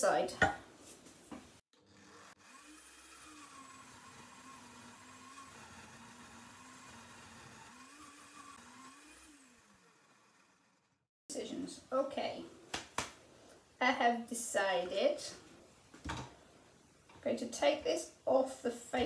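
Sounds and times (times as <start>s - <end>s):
lathe motor whirring: 1.7s - 11.1s.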